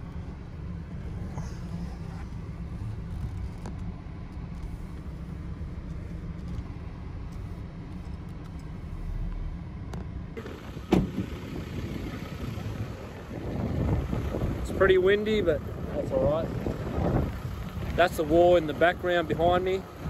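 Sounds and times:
car engine and road noise: 0:00.0 - 0:20.0
wind buffeting microphone: 0:10.6 - 0:20.0.

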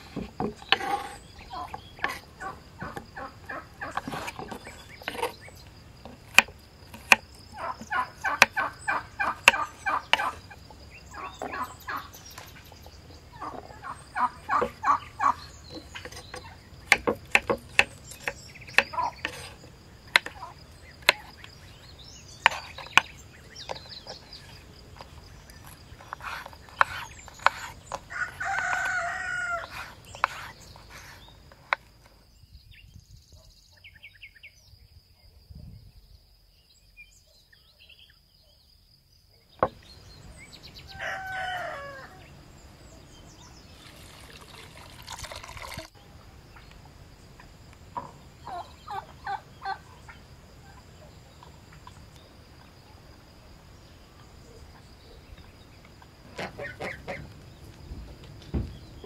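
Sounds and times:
rooster crowing: 0:28.1 - 0:29.9, 0:40.8 - 0:42.3
water pouring from clay jug: 0:43.7 - 0:46.0.

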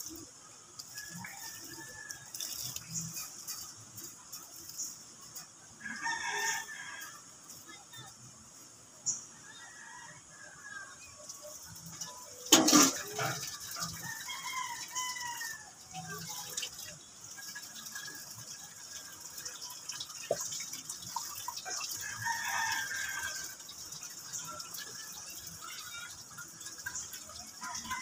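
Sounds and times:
rooster crowing: 0:05.8 - 0:07.2, 0:13.2 - 0:15.8.

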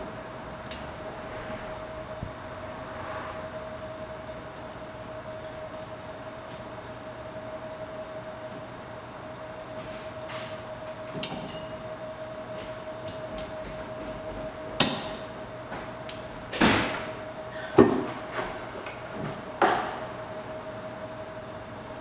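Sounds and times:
steady hum: 0:00.0 - 0:22.0
metal tool clinking in steel tube: 0:11.2 - 0:11.9.

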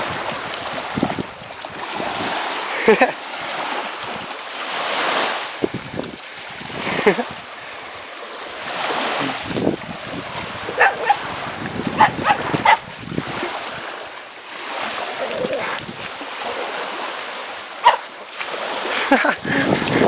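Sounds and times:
small waves washing on sand: 0:00.0 - 0:20.0
dog barking: 0:10.7 - 0:11.3, 0:12.0 - 0:12.9, 0:17.8 - 0:18.1.

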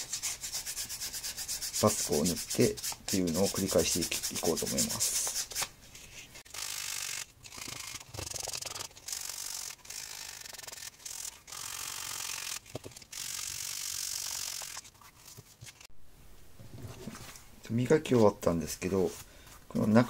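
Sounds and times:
sandpaper scraping leather: 0:00.0 - 0:05.7.

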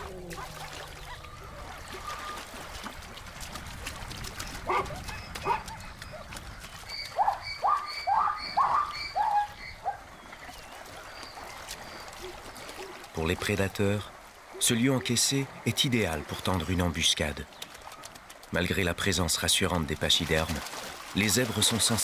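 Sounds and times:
zebras barking: 0:04.7 - 0:05.8, 0:07.2 - 0:10.0.

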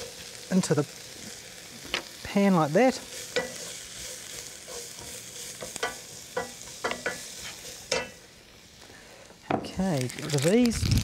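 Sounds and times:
onion and garlic sizzling in oil: 0:00.0 - 0:11.0
wooden spatula scraping a pot: 0:03.1 - 0:08.2.

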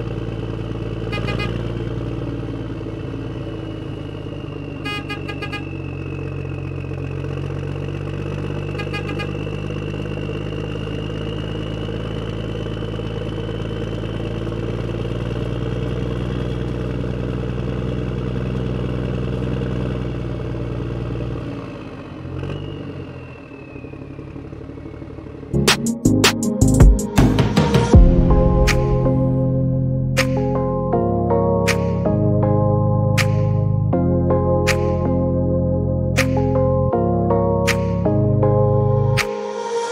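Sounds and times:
tractor engine idling: 0:00.0 - 0:25.8
short horn toot: 0:01.1 - 0:01.8, 0:04.8 - 0:05.8, 0:08.8 - 0:09.5.

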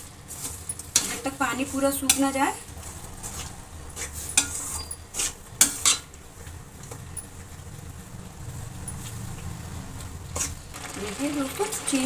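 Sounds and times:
metal spatula scraping a pan: 0:00.3 - 0:06.2.

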